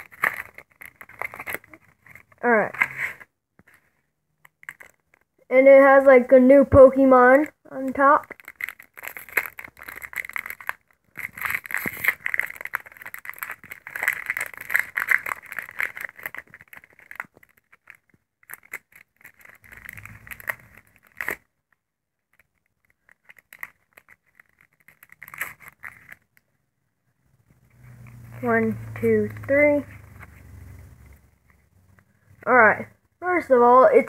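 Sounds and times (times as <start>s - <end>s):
foil wrapper crinkling and tearing: 0.0s - 3.0s, 4.4s - 5.4s, 7.8s - 26.4s.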